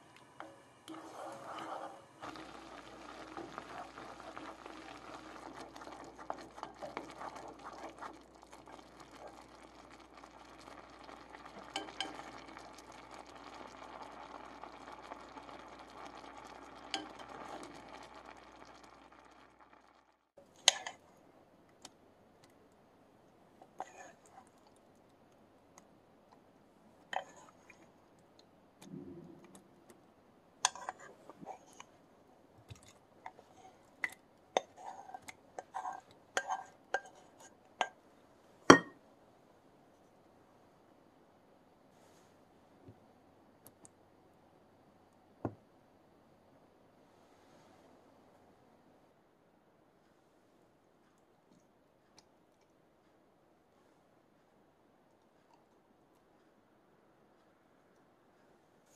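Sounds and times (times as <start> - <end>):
wooden spoon stirring and scraping: 0.0 - 19.6, 20.4 - 21.2, 23.6 - 25.0, 27.0 - 28.0, 30.6 - 38.0
syrup bubbling in saucepan: 0.0 - 39.1.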